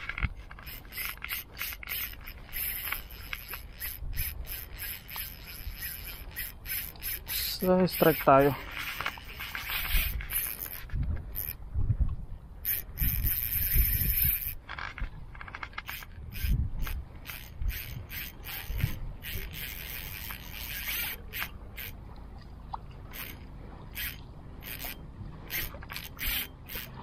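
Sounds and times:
fishing reel ratcheting: 0.0 - 11.6, 12.6 - 22.0, 23.1 - 27.0.

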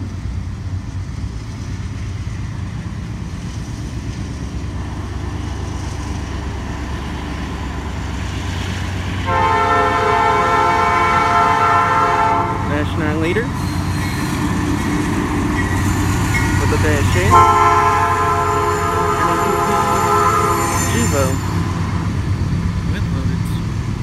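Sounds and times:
diesel freight train rumble: 0.0 - 24.0
locomotive horn chord: 9.2 - 13.2, 16.3 - 21.5.

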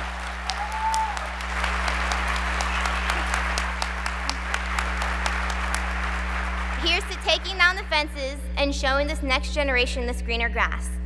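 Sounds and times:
audience applauding: 0.0 - 7.8
low electrical hum: 0.0 - 11.0.

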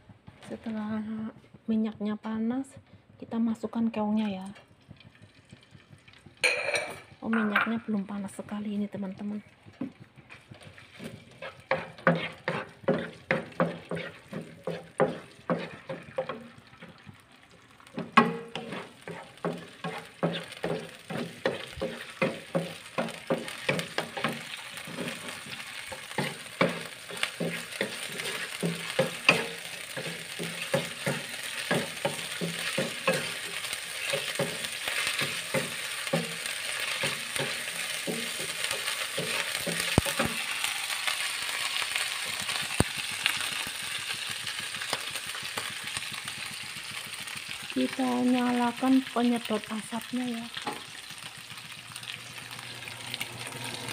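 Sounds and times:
oil sizzling: 0.0 - 53.9
wooden spatula scraping a pan: 8.1 - 47.2.

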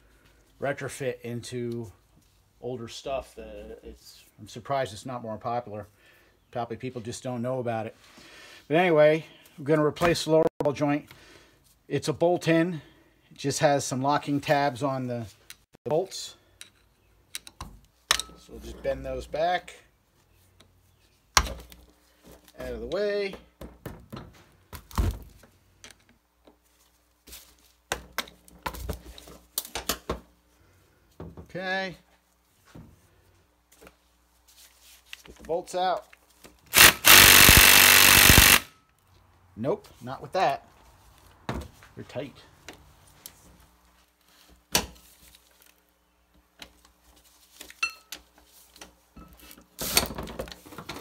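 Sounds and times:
rapid ratchet clicks: 36.8 - 38.7.

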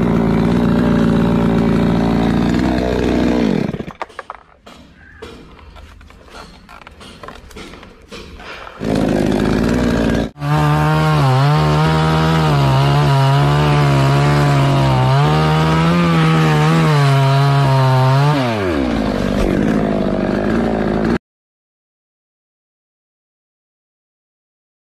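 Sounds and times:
chainsaw cutting wood: 0.0 - 4.8, 6.4 - 21.2.

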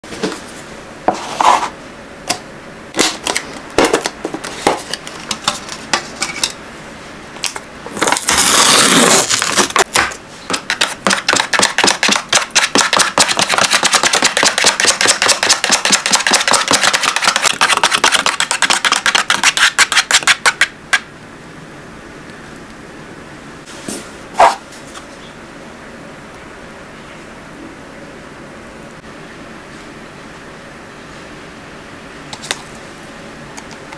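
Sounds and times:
whisk stirring in plastic carton: 10.5 - 20.7.

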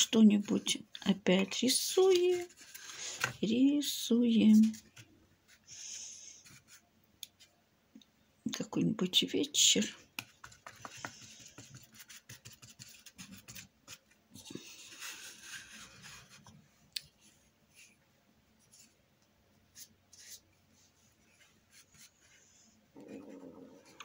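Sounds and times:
paintbrush scratching on surface: 10.2 - 16.5, 19.7 - 24.0.

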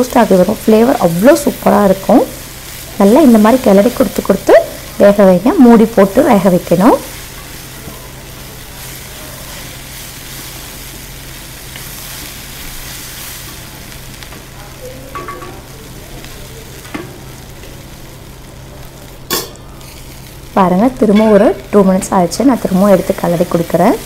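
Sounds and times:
vegetables sizzling in a pan: 0.0 - 24.0.

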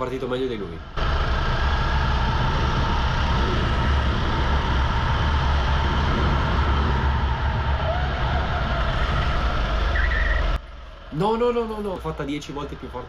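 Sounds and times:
go-kart engine at high revs: 1.0 - 10.6.

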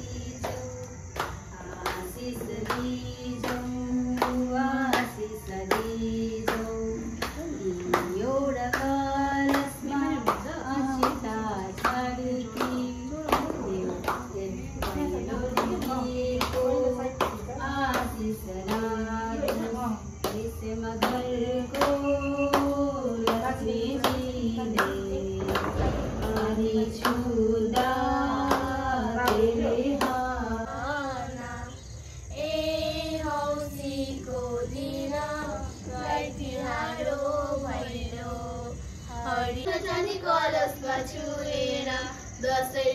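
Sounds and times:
person singing slow melody: 0.0 - 39.5
hand claps: 0.1 - 31.0.

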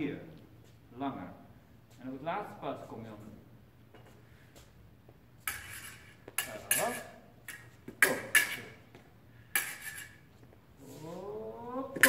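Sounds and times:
fencing blades clashing: 5.4 - 10.3.

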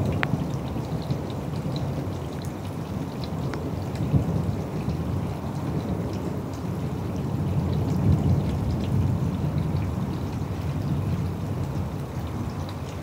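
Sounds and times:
falling rain: 0.0 - 13.0
low rumble of thunder: 0.0 - 13.0
raindrop ticks: 0.0 - 13.0.

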